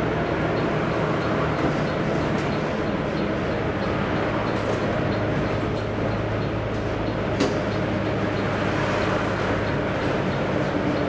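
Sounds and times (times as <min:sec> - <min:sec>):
bus engine humming: 0:00.0 - 0:11.0
road noise: 0:00.0 - 0:11.0.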